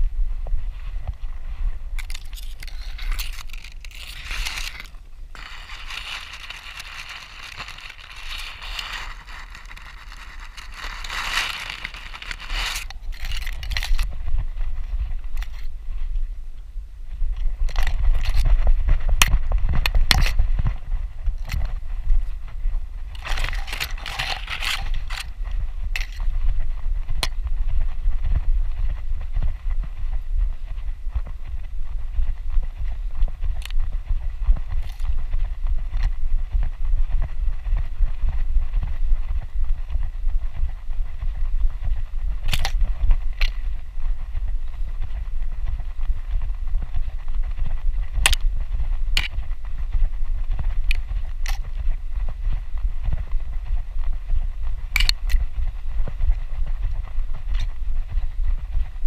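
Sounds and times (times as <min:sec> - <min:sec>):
grass brushing against camera: 0:00.4 - 0:16.1, 0:17.4 - 0:29.9.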